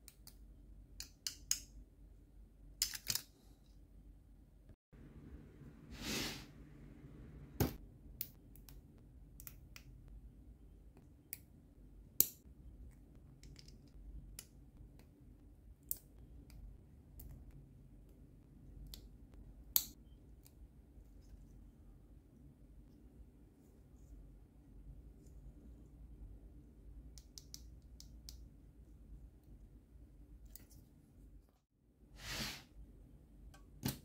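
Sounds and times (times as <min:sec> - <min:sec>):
plastic parts snapping together: 0:02.8 - 0:03.3.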